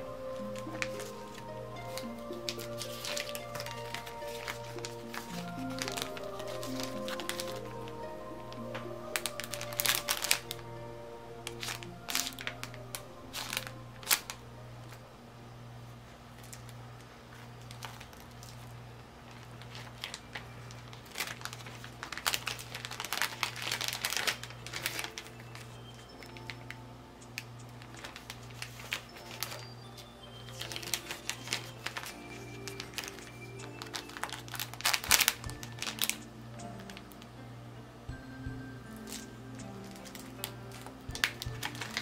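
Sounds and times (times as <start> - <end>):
soft background music: 0.0 - 42.0
plastic bag crinkling: 0.4 - 15.0, 16.4 - 26.7, 27.4 - 37.2, 39.0 - 42.0.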